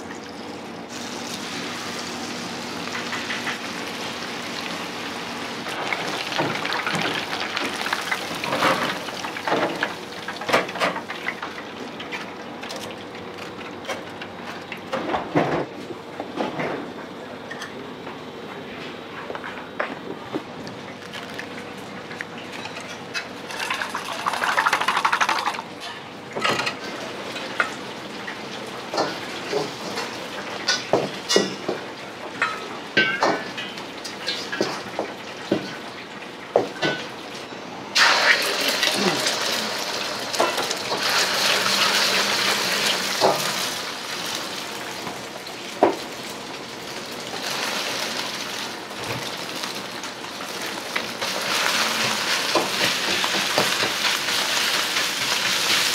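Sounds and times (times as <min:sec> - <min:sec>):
egg sizzling in hot oil: 0:38.0 - 0:44.8.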